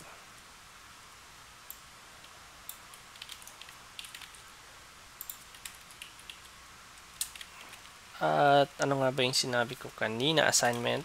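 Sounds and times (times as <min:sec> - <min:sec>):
low steady hum: 0:00.0 - 0:11.0
keyboard and mouse clicks: 0:02.7 - 0:04.4, 0:05.2 - 0:06.5, 0:07.2 - 0:07.9.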